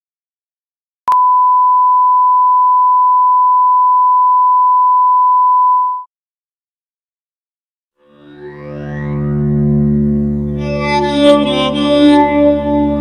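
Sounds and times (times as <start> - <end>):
steady pure test tone beep: 1.1 - 6.1.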